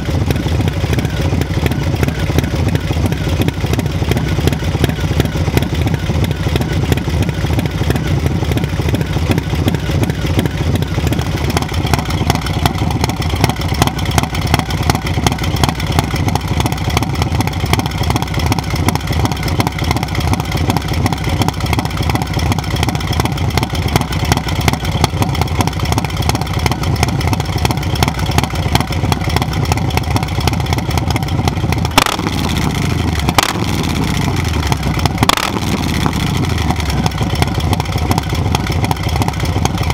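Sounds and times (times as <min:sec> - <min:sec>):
motorcycle engine idling: 0:00.0 - 0:39.9
engine throttle blips: 0:27.4 - 0:39.9.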